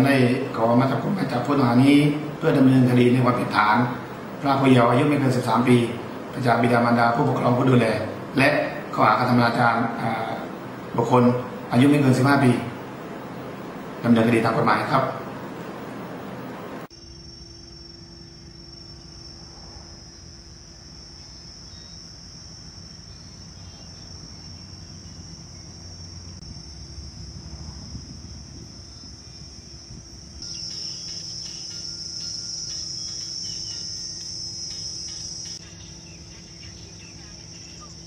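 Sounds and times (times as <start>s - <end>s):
insects buzzing: 0.0s - 38.0s
steady low hum: 0.0s - 38.0s.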